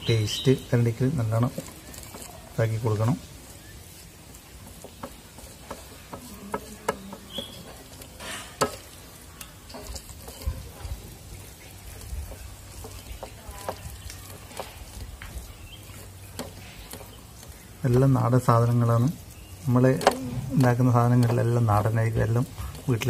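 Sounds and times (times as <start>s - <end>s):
hands squelching wet paste: 0.0s - 23.0s.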